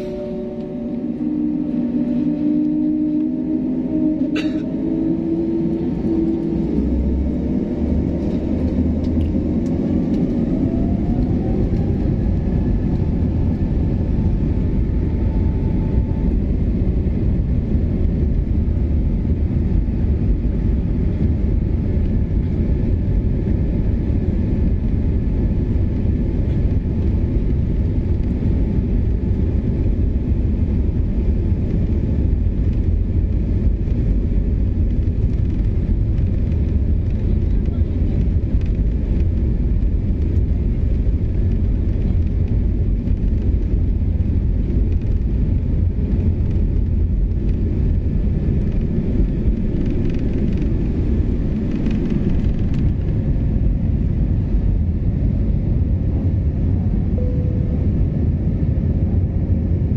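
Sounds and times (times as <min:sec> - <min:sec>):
jet engines whining and rumbling: 0:00.0 - 0:59.9.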